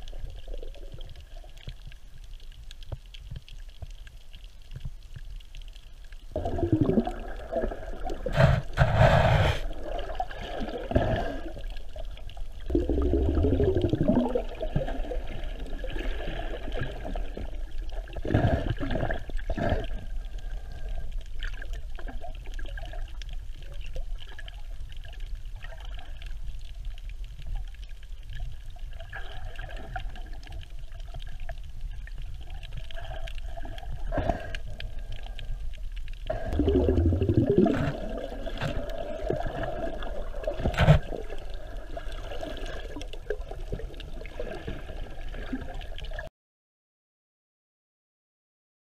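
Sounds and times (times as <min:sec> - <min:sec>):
small underwater clicks: 0:00.0 - 0:10.3, 0:10.9 - 0:46.3
underwater rumble of moving water: 0:00.0 - 0:46.3
churning water: 0:36.5 - 0:46.3.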